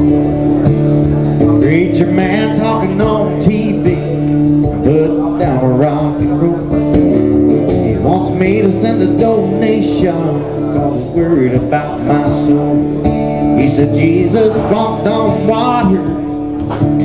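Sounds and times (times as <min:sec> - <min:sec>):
man singing country song: 0:00.0 - 0:17.0
strummed acoustic guitar: 0:00.0 - 0:17.0.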